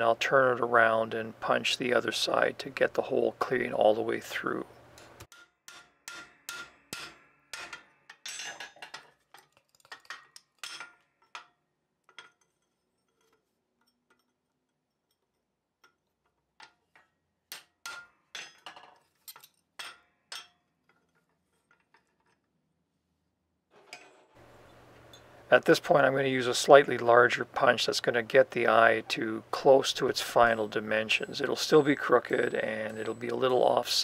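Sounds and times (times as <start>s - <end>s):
hammer striking metal punch: 5.3s - 8.8s.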